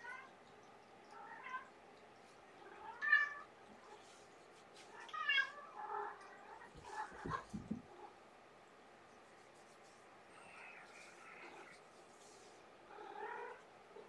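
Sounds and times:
rustling: 0:03.7 - 0:08.1, 0:09.1 - 0:13.5
soft thumps: 0:06.8 - 0:07.9.

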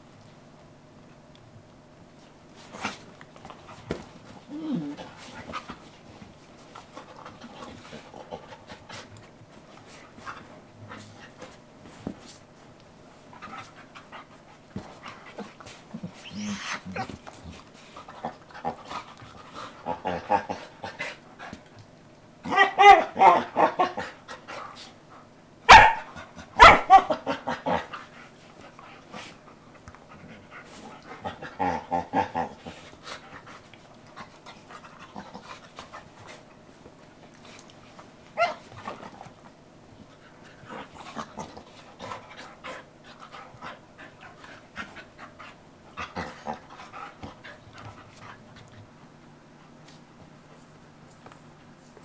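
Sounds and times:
dogs barking: 0:25.7 - 0:27.2.

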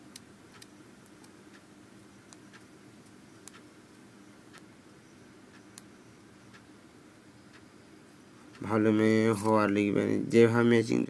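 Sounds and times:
low steady hum: 0:00.0 - 0:11.0
faint clicks: 0:02.3 - 0:04.7.

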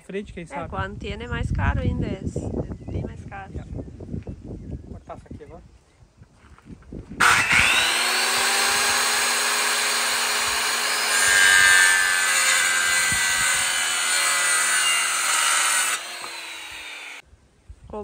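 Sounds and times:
power saw cutting wood: 0:07.2 - 0:17.2.

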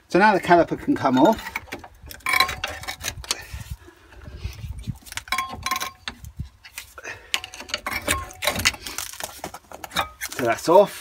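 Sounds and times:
metal clinks knocks and scrapes: 0:01.0 - 0:03.5, 0:04.6 - 0:10.4.

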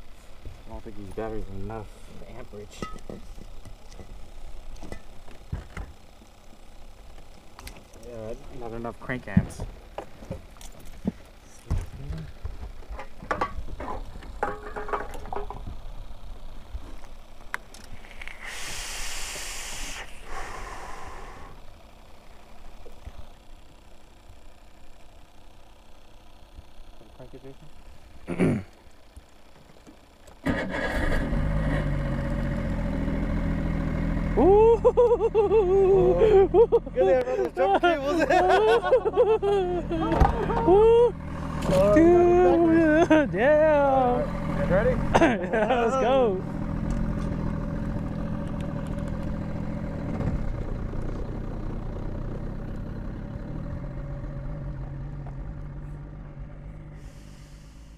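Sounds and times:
boat engine starting and idling: 0:29.9 - 0:57.9
person whooping: 0:34.4 - 0:36.9, 0:39.4 - 0:41.2.

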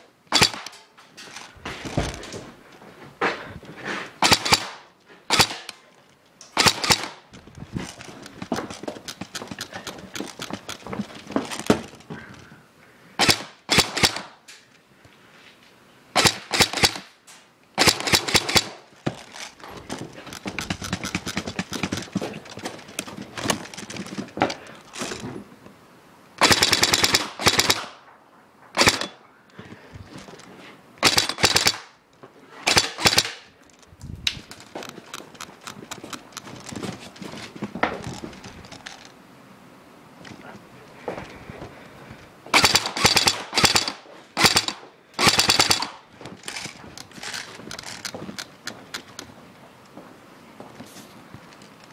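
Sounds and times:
airsoft rifle firing bursts: 0:00.3 - 0:00.7, 0:04.2 - 0:05.7, 0:06.6 - 0:07.2, 0:13.2 - 0:14.4, 0:16.2 - 0:17.1, 0:17.8 - 0:19.4, 0:26.4 - 0:28.0, 0:28.8 - 0:29.2, 0:31.0 - 0:32.0, 0:32.6 - 0:33.5, 0:42.5 - 0:46.6.

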